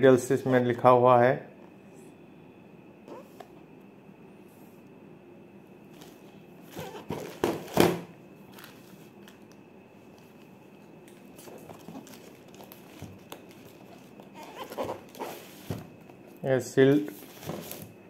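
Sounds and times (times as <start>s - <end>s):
plastic packaging crinkling: 8.4s - 10.5s, 11.1s - 15.6s.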